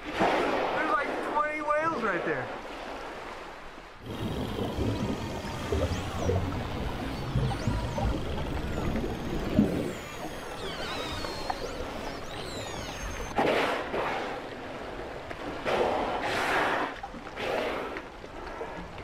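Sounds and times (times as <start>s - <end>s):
whale breaths at surface: 15.7s - 18.9s.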